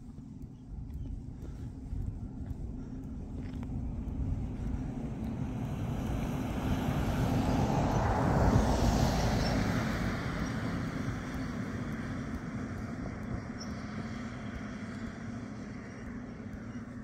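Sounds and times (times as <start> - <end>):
wind buffeting microphone: 0.0 - 17.0
vehicle passing: 3.4 - 17.0.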